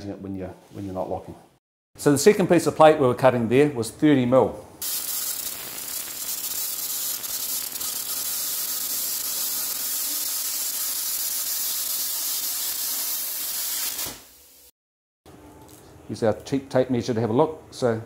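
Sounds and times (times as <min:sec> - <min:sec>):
plasma cutter hissing: 0:04.8 - 0:14.7.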